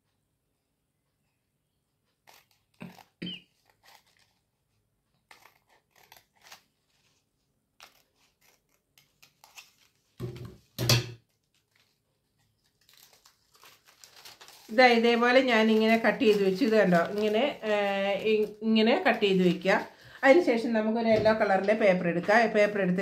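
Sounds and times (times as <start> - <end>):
scissors snipping paper: 2.1 - 4.5, 5.2 - 7.2, 7.8 - 10.5, 11.2 - 19.4
paper rustling: 2.2 - 20.0.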